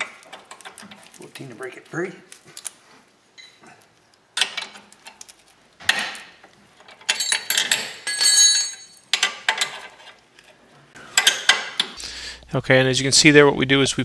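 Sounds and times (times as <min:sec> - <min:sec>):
steel wrenches clinking and clanking: 0:04.4 - 0:12.0.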